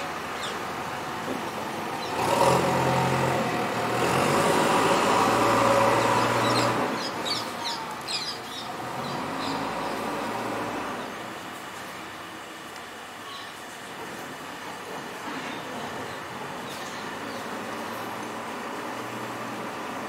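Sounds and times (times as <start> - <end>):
vehicle engine hum passing: 0.0 - 11.9, 15.2 - 20.0
birds chirping: 0.1 - 1.0, 5.5 - 11.2, 15.5 - 18.3.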